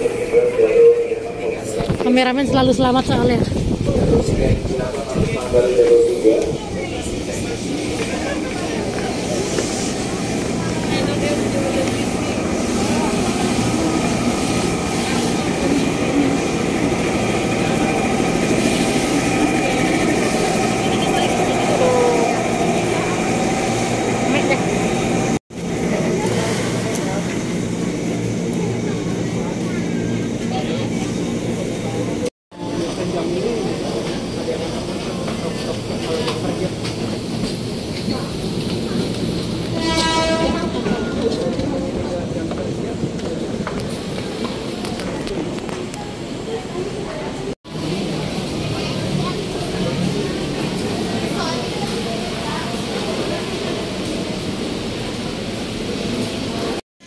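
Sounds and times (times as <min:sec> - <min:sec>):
electric trains humming: 0:00.0 - 0:56.8
murmur of crowd: 0:00.0 - 0:56.8.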